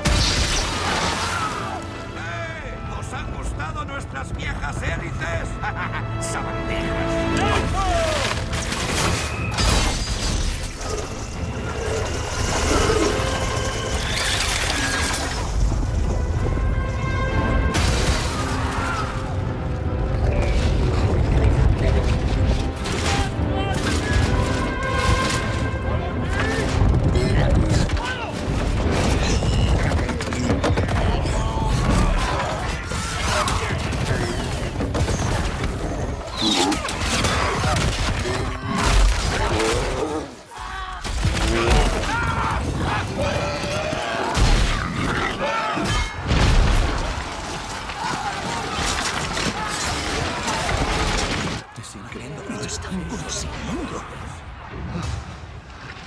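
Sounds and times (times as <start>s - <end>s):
orchestral music: 0.0s - 29.5s
people shouting and crying out: 1.0s - 2.6s, 18.1s - 20.8s, 22.8s - 34.9s, 35.6s - 51.8s.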